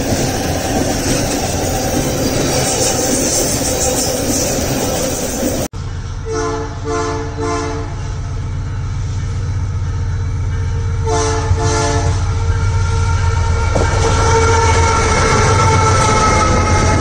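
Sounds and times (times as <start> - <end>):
locomotive engine drone: 0.0 - 17.0
locomotive horn blasts: 6.2 - 8.1, 10.6 - 17.0.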